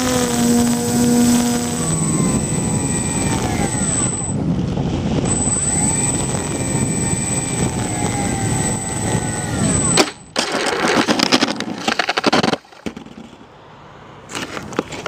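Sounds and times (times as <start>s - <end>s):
wind rush on microphone: 0.0s - 10.4s
electric motors whining: 0.0s - 11.2s.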